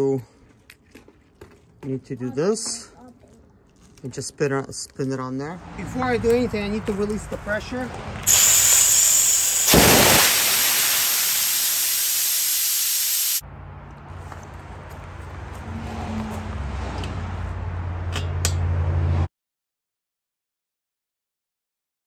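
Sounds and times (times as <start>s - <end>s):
compressed air hissing from valve: 8.3s - 13.4s.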